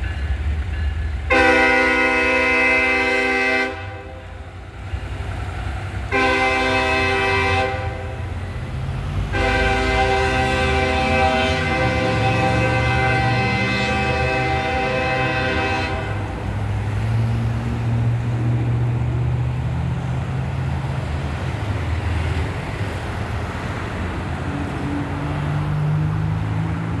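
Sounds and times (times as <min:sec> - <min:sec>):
road traffic rumble: 0:00.0 - 0:27.0
train horn chord: 0:01.3 - 0:04.4, 0:06.1 - 0:08.5, 0:09.2 - 0:16.6.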